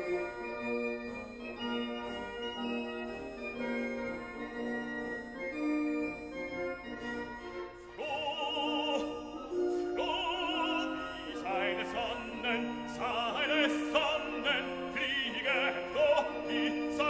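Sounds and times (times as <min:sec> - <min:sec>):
sustained orchestral chords: 0:00.0 - 0:17.0
operatic voice singing: 0:07.9 - 0:17.0.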